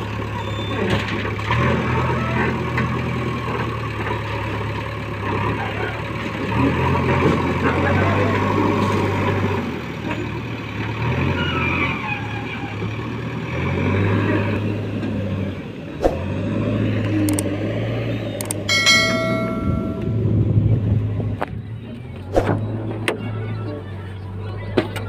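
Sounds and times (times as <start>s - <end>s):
diesel engines droning: 0.0s - 25.0s
sharp clicks: 17.0s - 17.5s, 18.3s - 18.7s
short bell-like ding: 18.7s - 20.4s.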